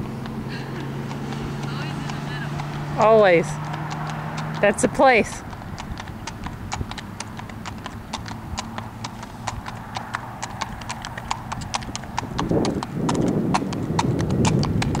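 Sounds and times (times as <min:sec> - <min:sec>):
horse hooves clip-clopping on asphalt: 0:00.0 - 0:15.0.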